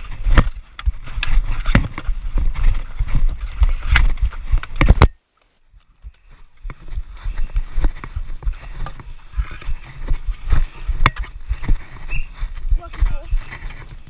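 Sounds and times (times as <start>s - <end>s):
wind on microphone: 6.0s - 14.0s.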